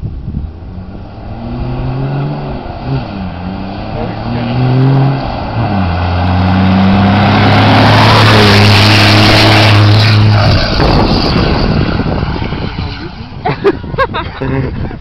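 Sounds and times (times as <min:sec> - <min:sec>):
tire and air rush: 0:00.0 - 0:14.6
diesel truck engine running hard: 0:01.3 - 0:13.4.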